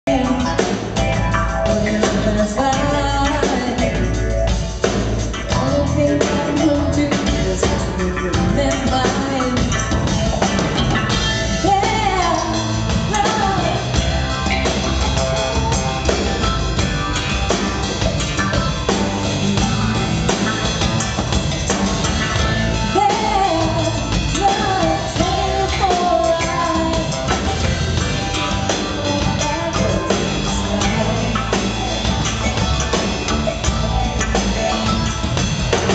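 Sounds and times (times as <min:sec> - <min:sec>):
person singing: 0:00.0 - 0:04.3, 0:05.4 - 0:09.9, 0:11.6 - 0:14.6, 0:22.9 - 0:27.7, 0:28.6 - 0:32.0
drum kit: 0:00.0 - 0:35.9
electric bass: 0:00.0 - 0:35.9
keyboard: 0:00.0 - 0:35.9.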